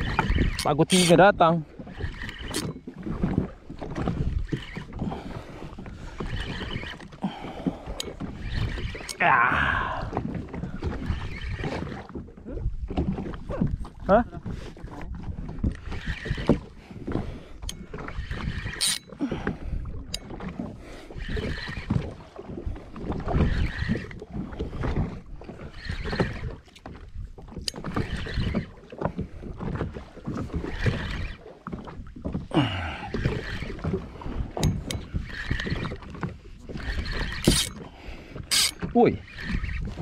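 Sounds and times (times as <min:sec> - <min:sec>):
water slapping against boat hull: 0:00.0 - 0:40.0.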